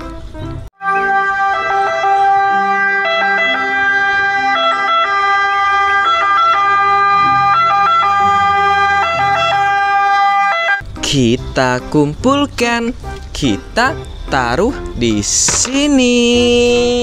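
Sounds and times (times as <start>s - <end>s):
ambulance siren: 0.8s - 10.8s.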